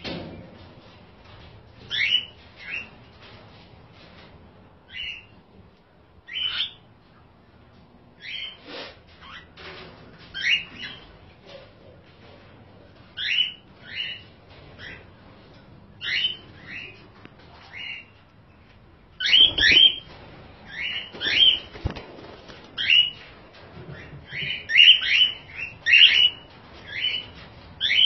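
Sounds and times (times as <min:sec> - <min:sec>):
cockatiels chirping: 0:01.9 - 0:02.8, 0:04.9 - 0:05.3, 0:06.3 - 0:06.8, 0:10.4 - 0:11.1, 0:13.2 - 0:15.0, 0:16.0 - 0:17.0, 0:19.2 - 0:20.1, 0:20.7 - 0:21.8, 0:22.8 - 0:23.2, 0:24.0 - 0:28.0.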